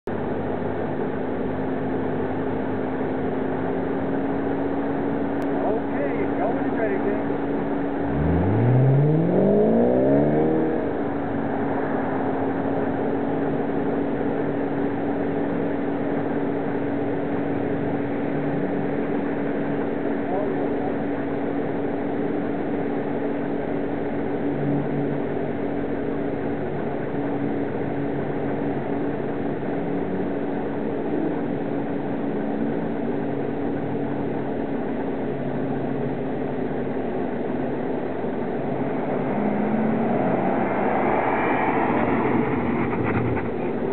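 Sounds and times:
car engines running: 0.1s - 43.9s
car driving past close by: 8.0s - 13.1s, 38.5s - 43.9s.

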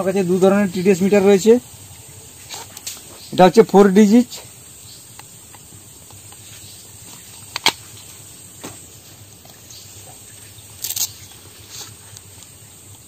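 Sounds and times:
background hiss: 0.0s - 13.0s.

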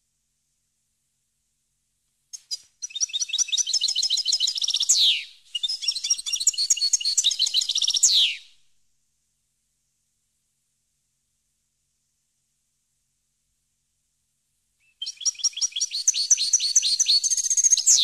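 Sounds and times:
goldfinch singing: 2.4s - 8.4s, 15.0s - 18.0s.

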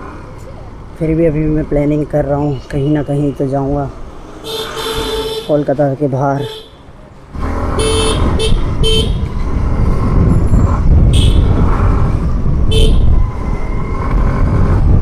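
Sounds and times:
scooter engine and wind rumble: 0.0s - 15.0s
vehicle horn toots: 4.4s - 5.6s, 6.4s - 6.8s, 7.8s - 9.2s, 11.1s - 11.5s, 12.7s - 13.1s.

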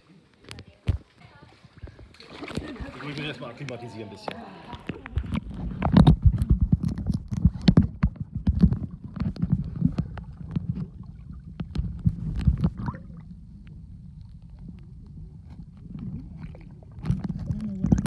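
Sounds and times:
underwater clicks and knocks: 4.3s - 18.0s
muffled underwater rumble: 4.7s - 18.0s.

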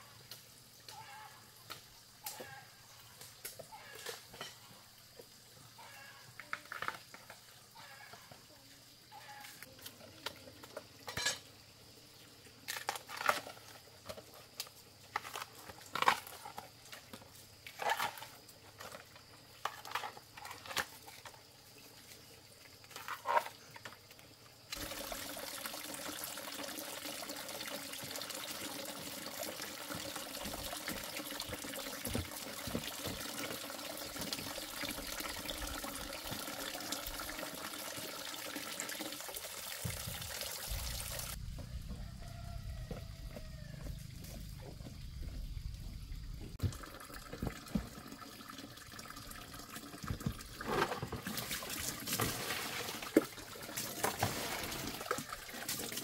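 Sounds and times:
running water: 24.6s - 41.4s, 45.7s - 56.0s.

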